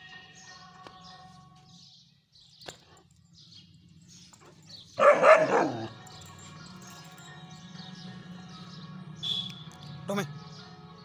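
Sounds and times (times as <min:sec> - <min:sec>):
puppy barking: 0:05.0 - 0:06.0.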